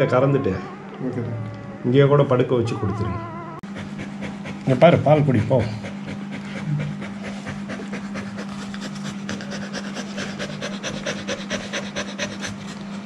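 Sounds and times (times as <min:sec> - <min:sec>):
steady low hum: 0:00.0 - 0:13.0
dog panting: 0:03.6 - 0:13.0.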